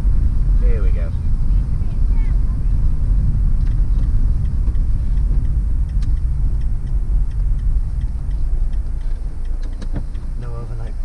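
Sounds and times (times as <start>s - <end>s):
van engine and road rumble: 0.0s - 11.0s
faint ticks: 3.3s - 11.0s.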